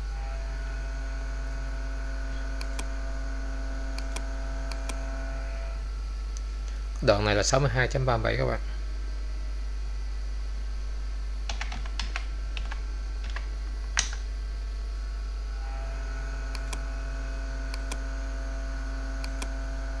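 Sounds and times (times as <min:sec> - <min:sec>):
low electrical hum: 0:00.0 - 0:20.0
keyboard typing: 0:11.5 - 0:14.2.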